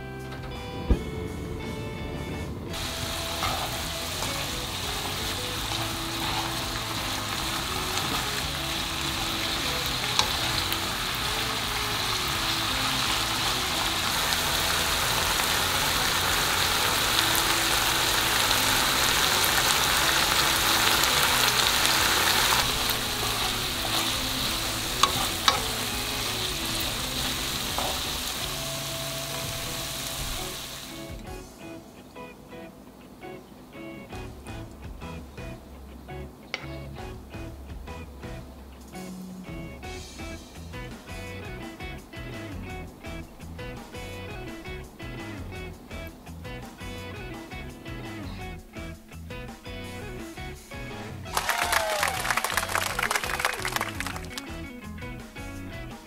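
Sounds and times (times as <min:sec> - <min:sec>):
soft background music: 0:00.0 - 0:56.0
meat sizzling in a frying pan: 0:02.7 - 0:31.1.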